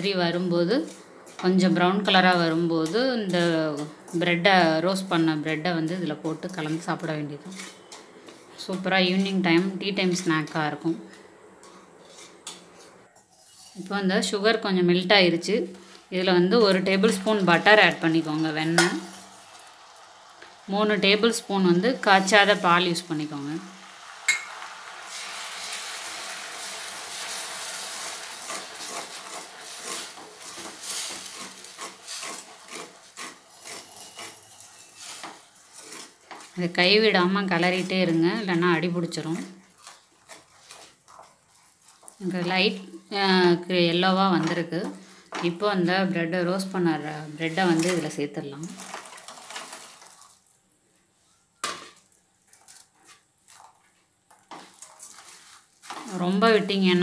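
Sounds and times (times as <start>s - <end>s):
spatula scraping and tapping pan: 0.8s - 1.6s, 6.2s - 13.9s, 27.2s - 36.8s, 39.6s - 42.2s, 51.3s - 56.7s
syrup sizzling in a pan: 16.9s - 38.6s.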